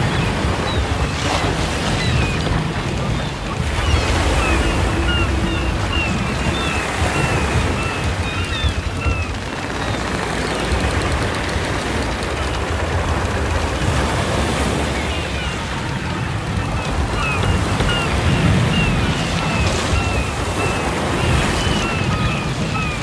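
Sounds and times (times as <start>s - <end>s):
ocean surf washing onto beach: 0.0s - 23.0s
seagull cries: 2.0s - 10.6s.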